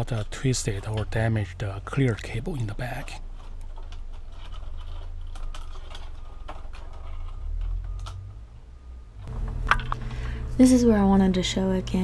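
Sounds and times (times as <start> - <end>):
clicks and rustles of plastic parts: 0.0 - 8.4
low background hum: 0.0 - 12.0.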